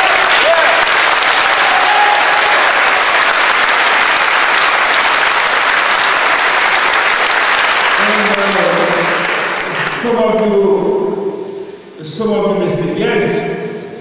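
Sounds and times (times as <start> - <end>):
audience applause: 0.0 - 10.1
person speaking: 8.0 - 14.0.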